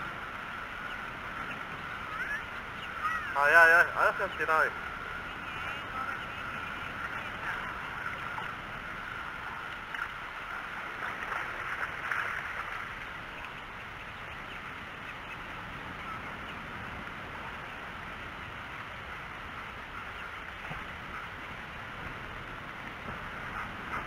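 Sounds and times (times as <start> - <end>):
ducks quacking: 0.7 - 8.6, 23.3 - 24.0.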